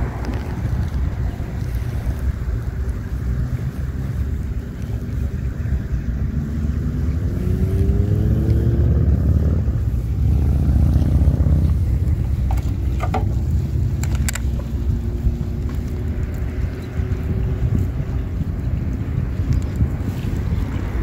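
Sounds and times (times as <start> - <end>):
engine hum rising in pitch: 0.0 - 21.0
steady low rumble: 0.0 - 21.0.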